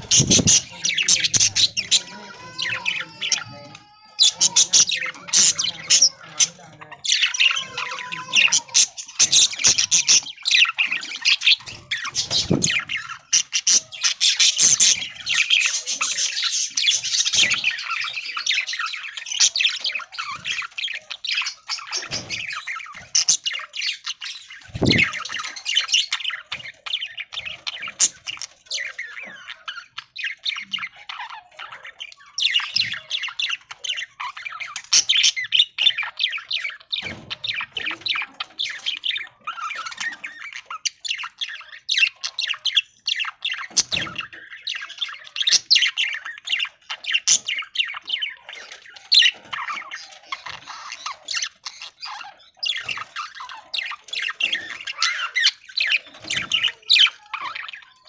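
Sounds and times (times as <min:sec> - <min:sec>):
budgerigars chirping and squawking: 0:00.0 - 0:58.0.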